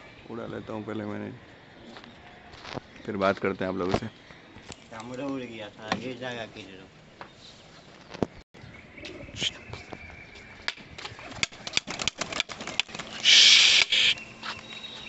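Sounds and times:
pigeon wings flapping and clapping: 10.7 - 13.3.

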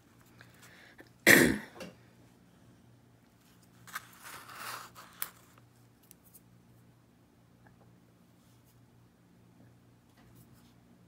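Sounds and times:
person coughing: 1.2 - 1.8
rustling scrape: 3.4 - 5.6.

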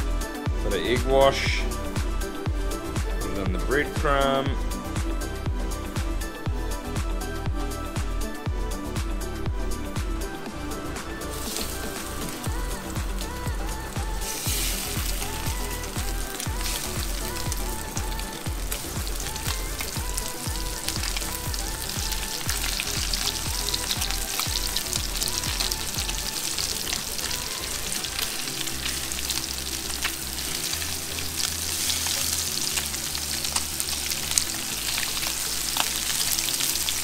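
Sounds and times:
music with bass beat: 0.0 - 37.0
fish frying in oil: 11.3 - 37.0.

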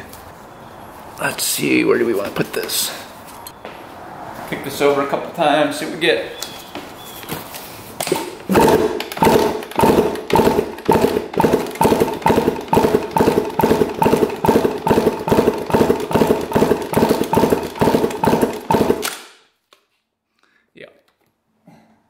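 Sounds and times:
engine kicked over rhythmic pulsing: 8.1 - 19.1.

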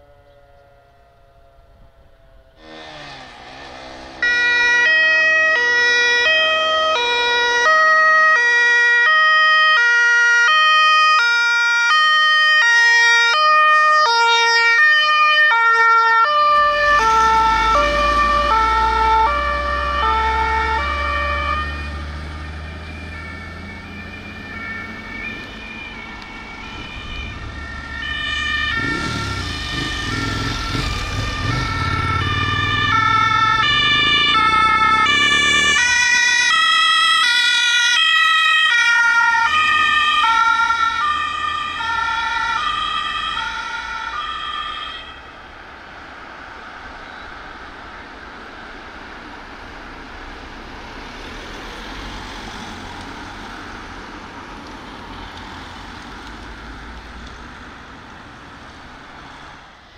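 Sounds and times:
fire engine two-tone horns: 0.0 - 22.0, 26.7 - 45.4
heavy truck engine rumble: 16.6 - 37.2.

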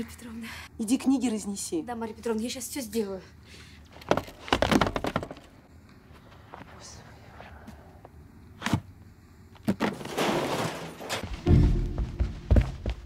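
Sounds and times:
books knocking on wooden shelves: 4.1 - 5.4
clattering crash: 9.8 - 11.9.

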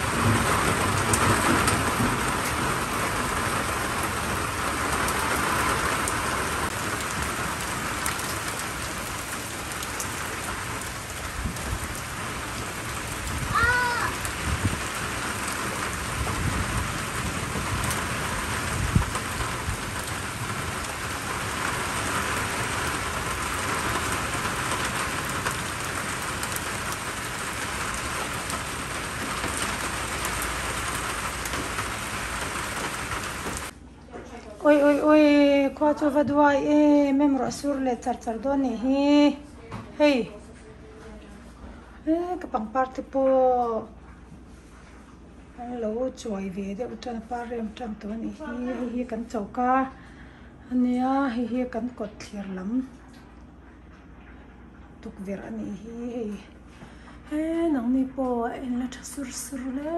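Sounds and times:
heavy rain on a wooden deck: 0.0 - 33.9.

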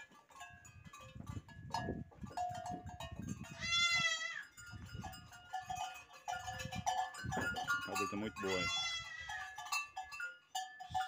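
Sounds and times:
young goat bleating: 3.5 - 4.5, 8.4 - 9.6.

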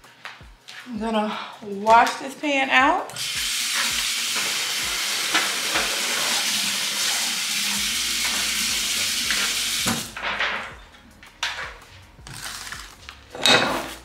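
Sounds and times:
tap water running: 3.1 - 10.4
aluminum pan being rinsed: 3.2 - 10.0.

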